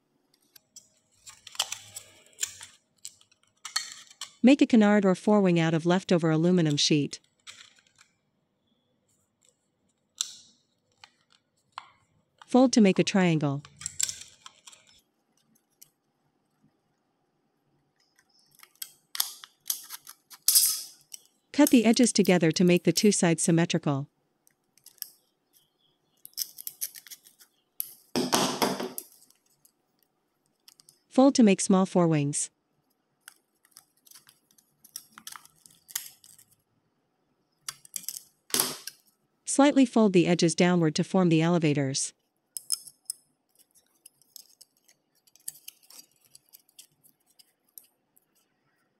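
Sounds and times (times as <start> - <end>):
aluminum sheet crinkling: 0.4 - 4.5, 9.1 - 12.6, 13.6 - 16.0, 18.0 - 23.1, 24.5 - 28.1, 33.2 - 36.6, 43.0 - 48.6.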